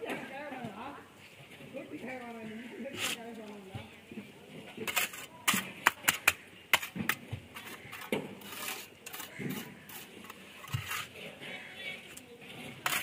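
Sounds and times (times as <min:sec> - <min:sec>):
trowel scraping wet concrete: 0:02.9 - 0:03.4, 0:04.7 - 0:11.4, 0:12.5 - 0:13.0.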